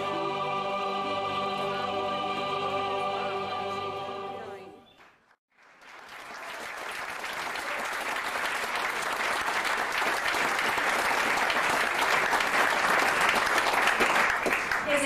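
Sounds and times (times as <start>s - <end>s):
audience applause: 5.5s - 15.0s.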